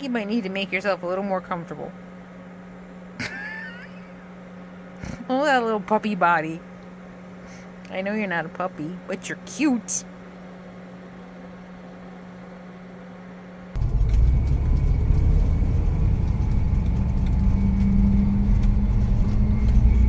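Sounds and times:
faint transmission whine: 0:00.0 - 0:20.0
quiet steady hum: 0:00.0 - 0:20.0
motorhome driving rumble: 0:13.8 - 0:20.0.

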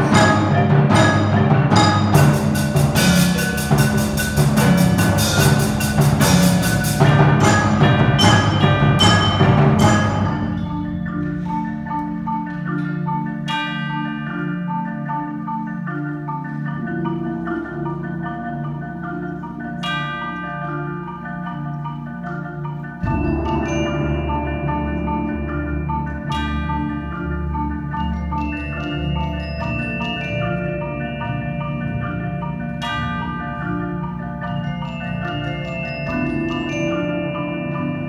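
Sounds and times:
marimbas and vibraphone playing: 0:00.0 - 0:38.0
low bass line: 0:23.0 - 0:28.4.

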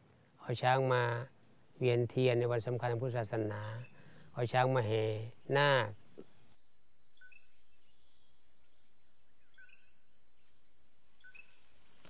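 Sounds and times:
high-pitched insect chirring: 0:02.1 - 0:12.0
bird chirps: 0:07.2 - 0:08.4, 0:09.3 - 0:10.0, 0:11.1 - 0:11.7.

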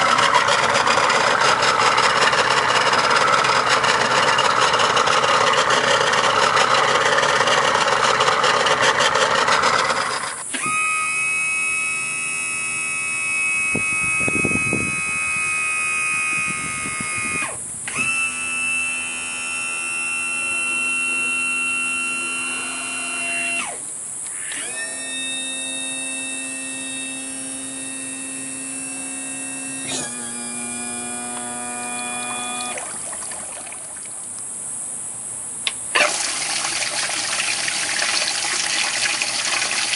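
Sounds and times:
electric motor whining: 0:00.0 - 0:33.6, 0:35.9 - 0:39.9
outboard motor running: 0:00.0 - 0:34.4, 0:35.6 - 0:39.9.

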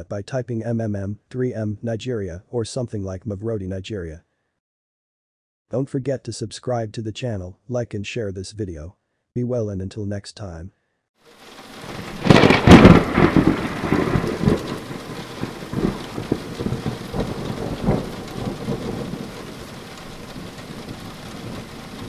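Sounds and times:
steady rain: 0:11.2 - 0:22.0
thunder crack and rumble: 0:11.5 - 0:22.0.

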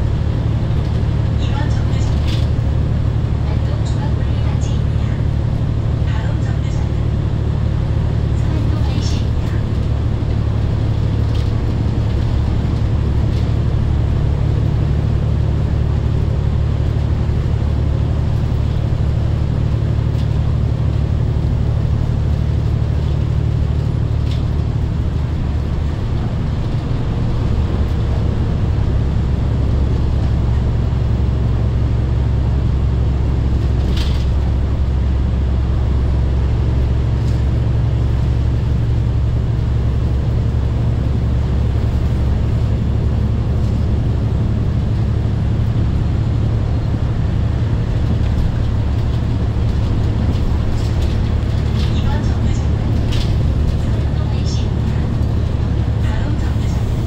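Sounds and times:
bus diesel engine droning: 0:00.0 - 0:57.0
road and tyre noise: 0:00.0 - 0:57.0.

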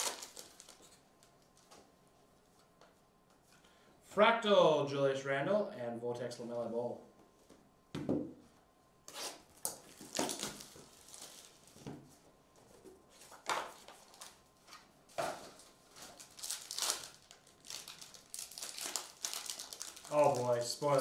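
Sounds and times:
cardboard and foil rustling: 0:00.0 - 0:01.0, 0:09.8 - 0:12.3, 0:13.1 - 0:21.0.

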